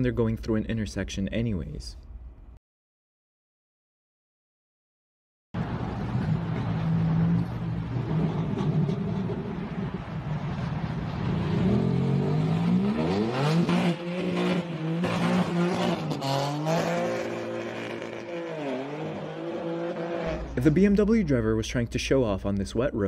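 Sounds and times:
car engine revving: 5.6 - 20.8.

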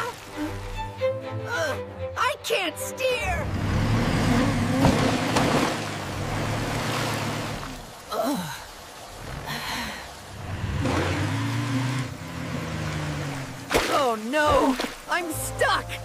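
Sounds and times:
cartoon car engine hum: 3.4 - 7.9, 9.2 - 13.7.

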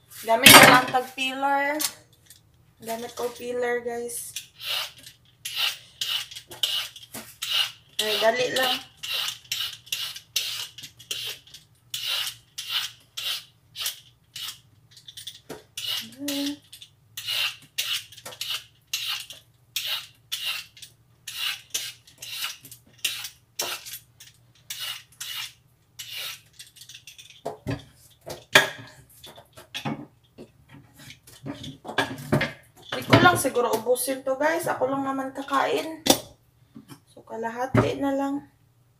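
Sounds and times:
peeler scraping papaya skin: 4.3 - 27.4.

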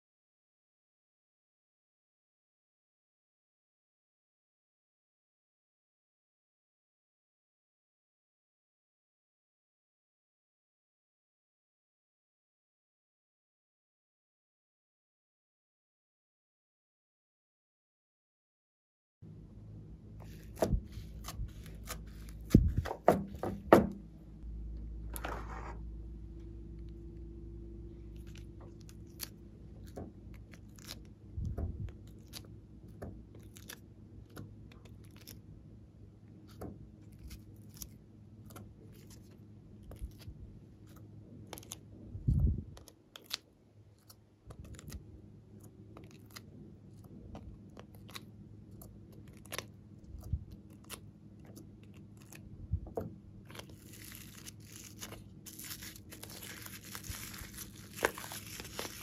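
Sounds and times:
dull thump: 22.5 - 24.0.

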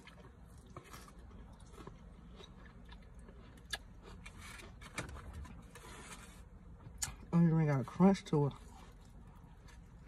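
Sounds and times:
chewing crispy onion ring: 0.0 - 4.8.

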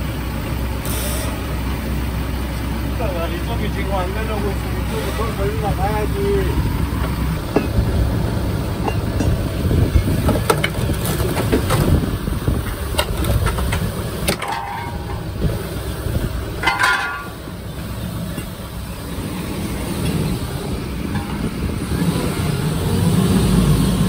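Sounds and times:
low machine rumble: 0.0 - 24.0
metal clanks and knocks: 6.9 - 8.0, 8.7 - 18.8, 21.0 - 22.1.

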